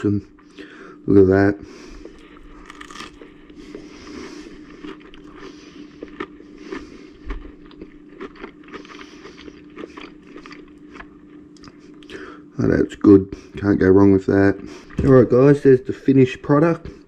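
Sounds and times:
chewing crispy fried fish: 0:01.8 - 0:12.2.

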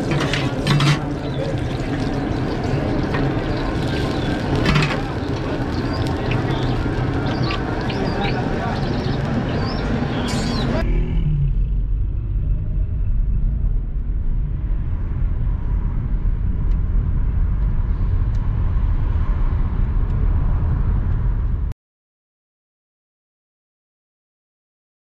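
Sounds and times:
car road rumble from inside: 0:00.0 - 0:21.7.

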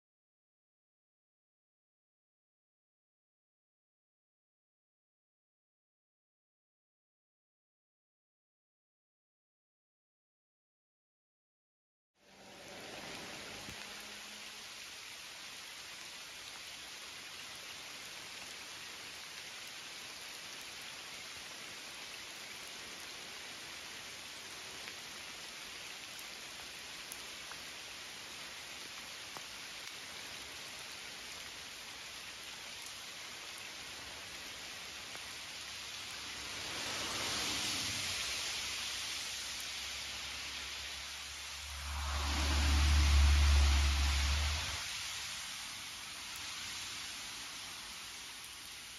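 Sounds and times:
rain falling on leaves and water: 0:12.2 - 0:48.9
loud low rumble: 0:41.5 - 0:44.8.

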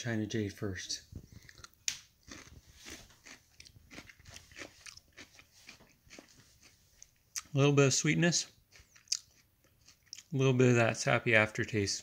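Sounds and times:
person crunching cucumber: 0:01.3 - 0:07.6, 0:08.4 - 0:10.4.

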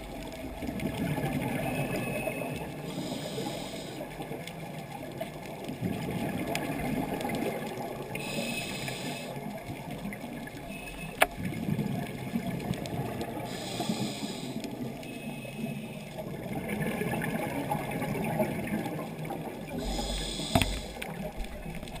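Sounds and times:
hissing regulator inhales: 0:02.9 - 0:04.0, 0:08.2 - 0:09.4, 0:13.5 - 0:14.7, 0:19.8 - 0:21.0
bubbling exhaled air: 0:16.6 - 0:22.0.

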